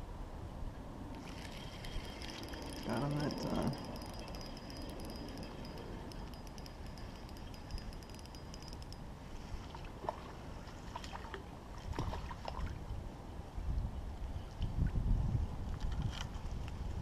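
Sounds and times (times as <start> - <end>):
fishing reel whirring: 1.1 - 9.1.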